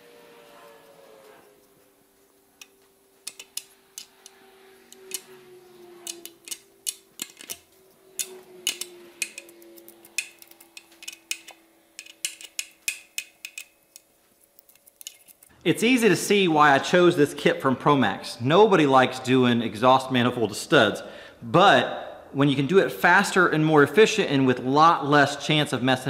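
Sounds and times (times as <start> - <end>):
metallic clicks of ratchet and tap: 2.6 - 5.3, 8.2 - 9.5, 10.1 - 14.1.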